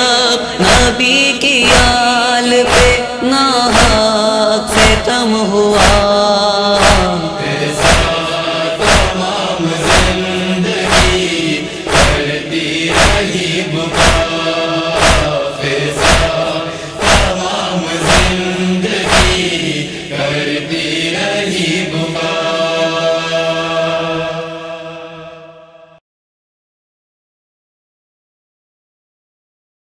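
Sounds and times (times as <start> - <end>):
men chanting a drone: 0.0 - 25.8
chest-beating slaps: 1.6 - 2.0, 2.6 - 3.0, 3.7 - 4.1, 4.7 - 5.1, 5.8 - 6.1, 6.8 - 19.8.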